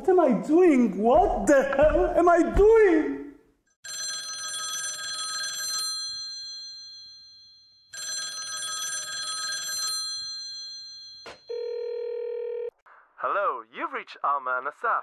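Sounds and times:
telephone ringing: 3.8s - 12.8s.

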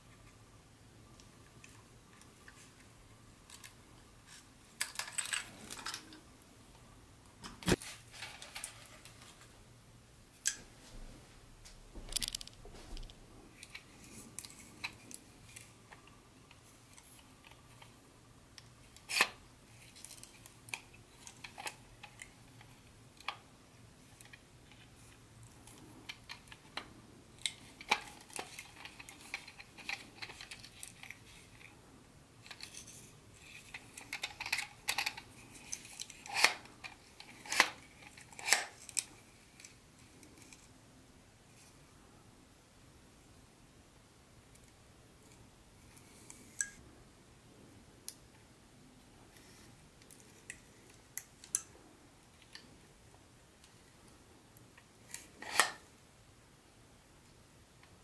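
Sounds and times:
clicks and light clatter: 11.6s - 18.0s.

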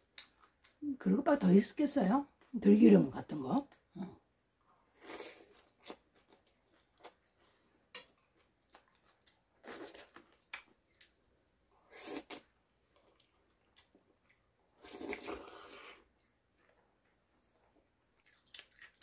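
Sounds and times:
quiet chewing: 4.9s - 19.0s.

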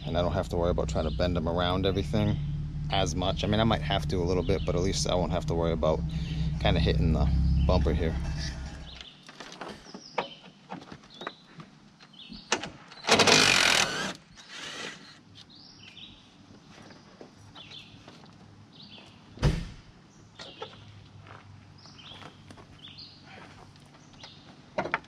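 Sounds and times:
birds chirping: 0.0s - 19.4s, 20.0s - 24.8s.

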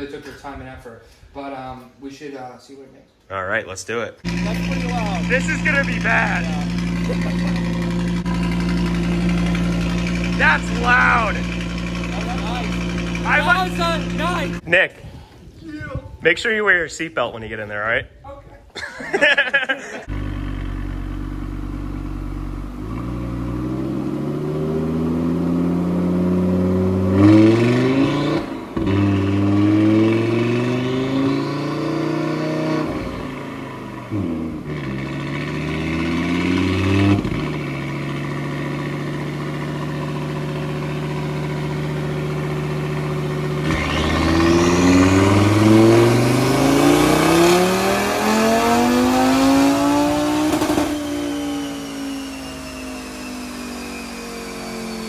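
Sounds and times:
car engine revving at full throttle: 4.3s - 14.6s, 20.0s - 55.0s
high turbo whistle: 50.5s - 55.0s.

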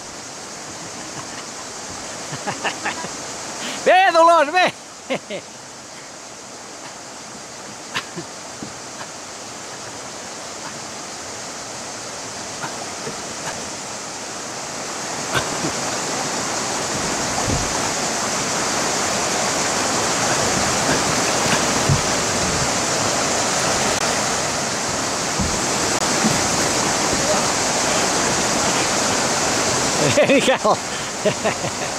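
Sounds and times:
water rushing over rocks: 0.0s - 31.9s
light knocks and low thumps: 16.9s - 18.0s, 20.3s - 28.4s.

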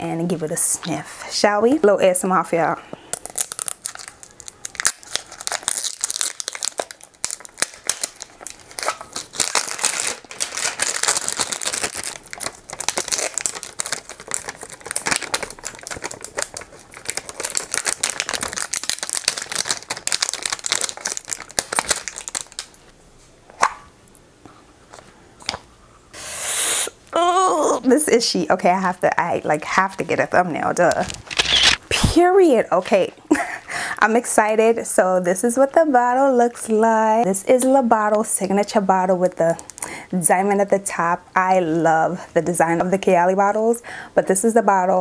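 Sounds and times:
packaging crinkling and tearing: 3.1s - 22.9s, 30.8s - 31.8s.

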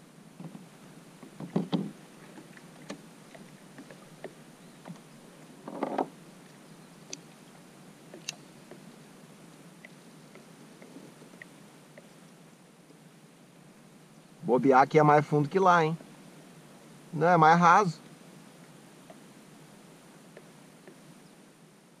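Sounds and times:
knocks against plastic kayak hull: 1.3s - 2.0s
small ticks: 2.4s - 7.5s, 8.1s - 8.8s, 9.8s - 13.0s, 20.3s - 21.1s.

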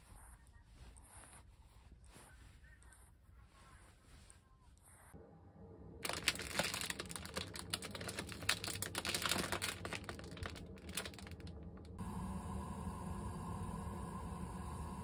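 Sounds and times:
steady hum: 5.1s - 15.0s
plastic packet crinkling: 6.0s - 12.0s.

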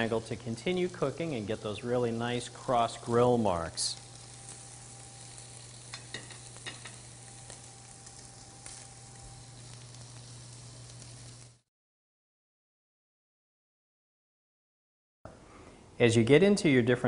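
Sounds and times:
steaks sizzling on grill pan: 0.0s - 11.7s.

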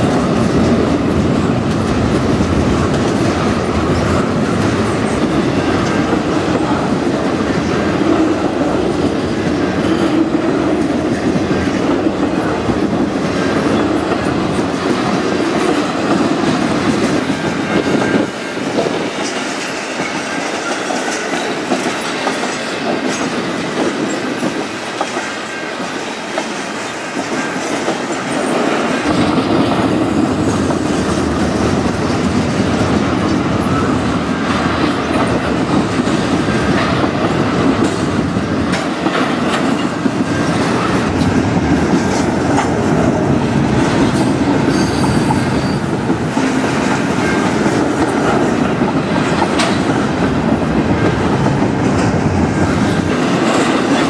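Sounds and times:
train wheels clacking on rails: 0.0s - 54.0s.

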